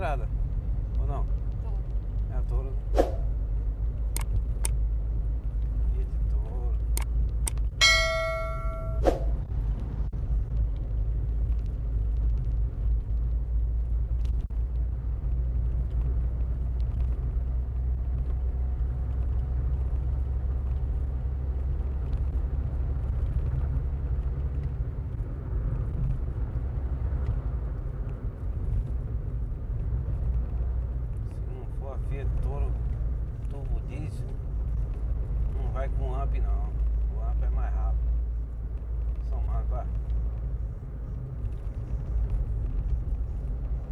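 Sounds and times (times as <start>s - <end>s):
car road and engine rumble: 0.0s - 43.9s
bell-like ding and click: 7.8s - 9.3s.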